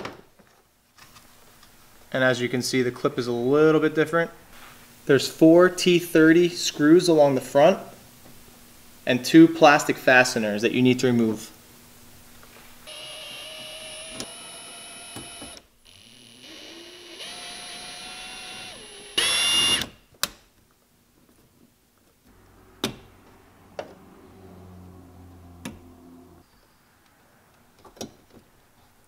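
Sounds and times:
cordless drill motor whine: 0:12.8 - 0:19.9.

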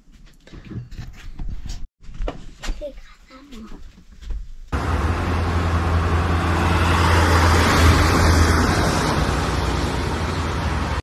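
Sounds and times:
van engine and road noise: 0:04.7 - 0:11.0.

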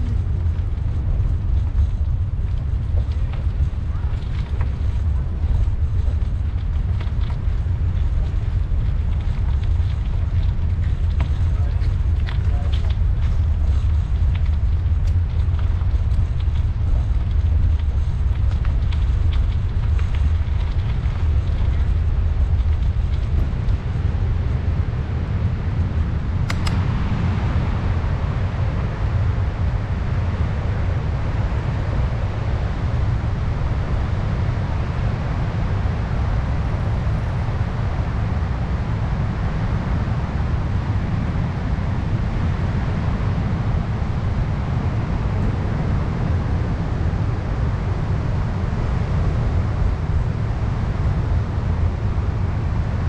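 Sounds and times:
bicycle rolling noise: 0:00.0 - 0:53.0
wind rumble on microphone: 0:00.0 - 0:53.0
sharp click: 0:26.5 - 0:26.9.

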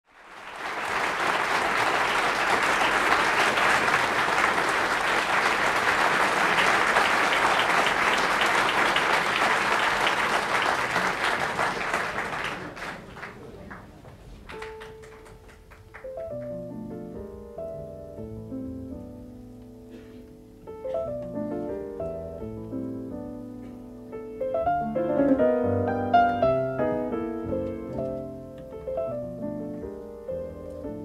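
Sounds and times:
audience applauding: 0:00.1 - 0:16.7.

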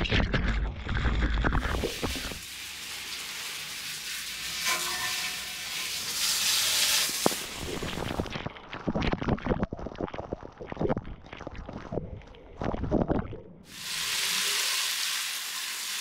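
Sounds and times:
garden hose spraying: 0:01.6 - 0:08.3, 0:13.7 - 0:16.0
water spattering on metal: 0:01.6 - 0:08.3.

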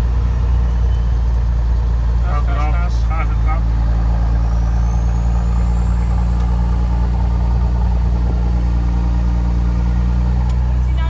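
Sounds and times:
truck diesel engine drone: 0:00.0 - 0:11.0.

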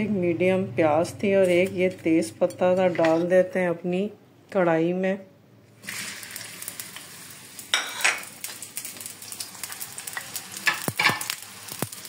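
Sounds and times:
onion sizzling in hot oil: 0:05.8 - 0:12.0.

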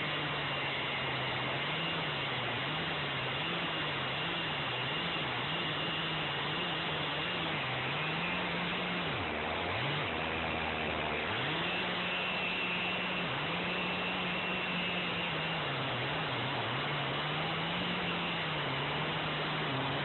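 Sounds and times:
chainsaw cutting log: 0:00.0 - 0:20.0.

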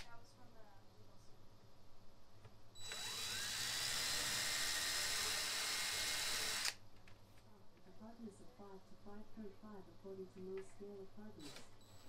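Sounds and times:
impact driver drilling into wood: 0:02.8 - 0:06.8.

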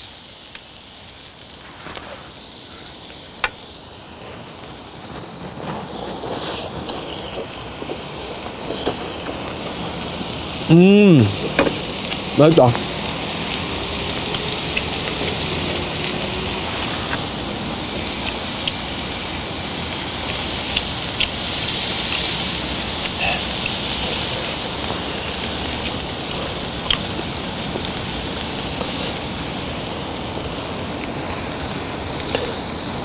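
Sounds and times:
beef sizzling in a pan: 0:00.0 - 0:33.0
pops and crackles: 0:04.6 - 0:10.3, 0:20.1 - 0:31.4.

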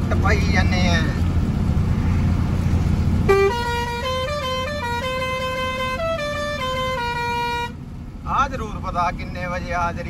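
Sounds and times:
truck engine drone: 0:00.0 - 0:10.0
truck musical horn: 0:03.2 - 0:07.8.

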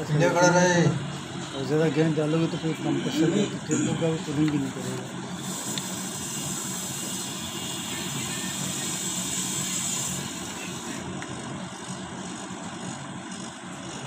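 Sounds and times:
compressor humming: 0:00.0 - 0:14.0
gas hissing through valve: 0:05.3 - 0:11.0.

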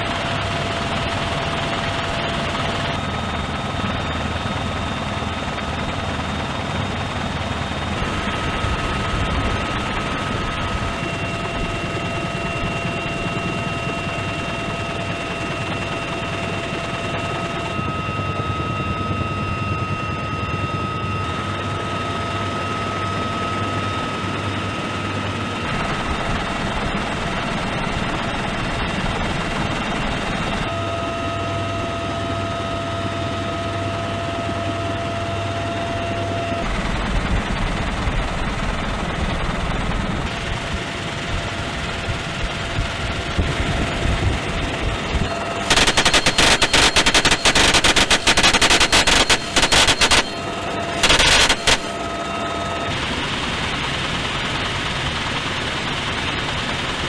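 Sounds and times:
helicopter cabin rumble: 0:00.0 - 0:57.0
steady whining tones: 0:00.0 - 0:57.0.

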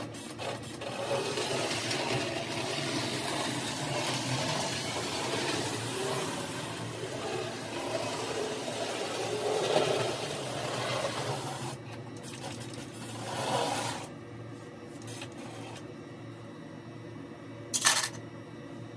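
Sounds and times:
toy train motor whirring: 0:00.2 - 0:11.8.

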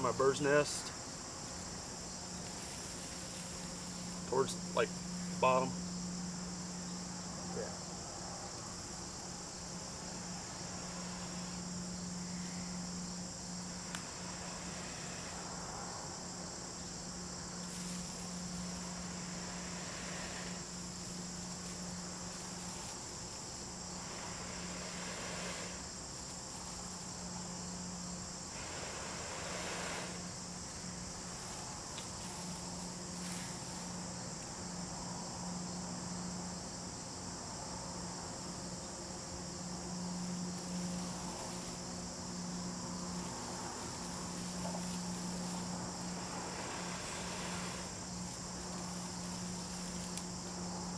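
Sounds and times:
crickets chirring: 0:00.0 - 0:50.9
person blowing into tinder: 0:28.5 - 0:30.2.

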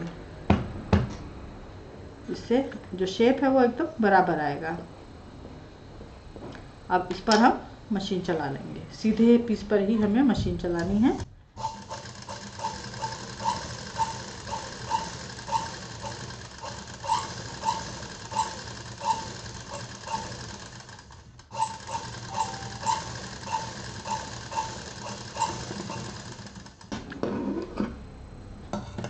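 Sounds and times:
sewing machine stitching: 0:11.6 - 0:26.9.

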